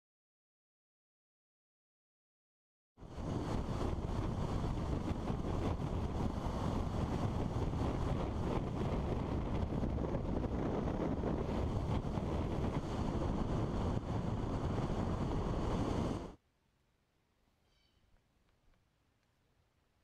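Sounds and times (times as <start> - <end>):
wind buffeting microphone: 3.0 - 16.4.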